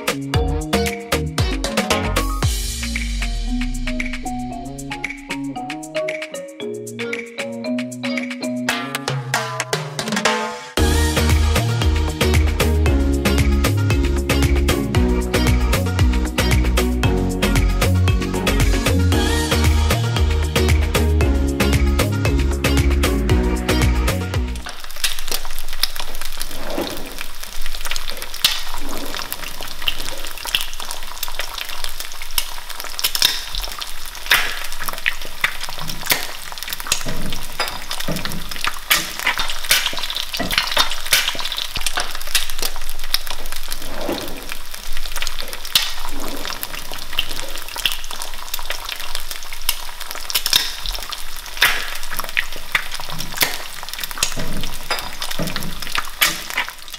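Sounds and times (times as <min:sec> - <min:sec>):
egg sizzling in oil: 0:24.6 - 0:56.9
oil popping: 0:24.6 - 0:56.9.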